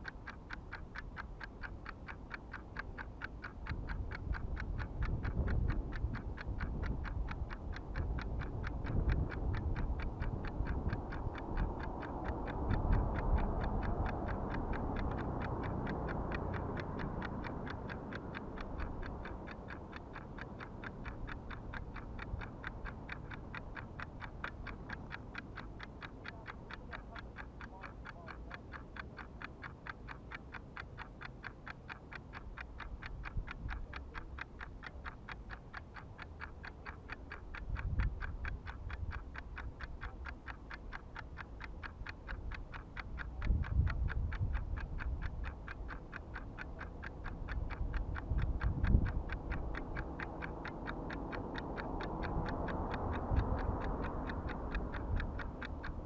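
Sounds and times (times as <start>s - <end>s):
fast mechanical ticking: 0.0s - 56.0s
wind noise on microphone: 3.7s - 15.2s, 37.6s - 39.4s, 43.3s - 45.4s, 47.6s - 49.7s.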